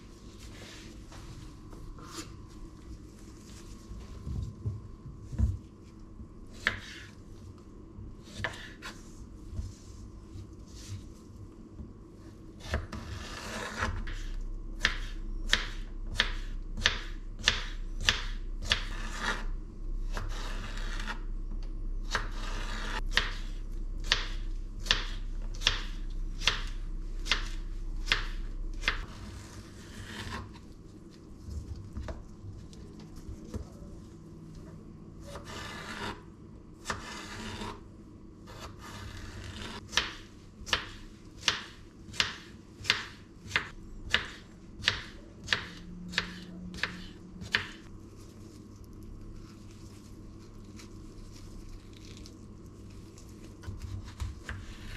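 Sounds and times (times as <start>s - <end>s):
low hum: 0.0s - 13.2s, 13.9s - 35.3s
knife chopping on wooden board: 12.6s - 19.4s, 22.1s - 30.5s, 38.5s - 47.9s.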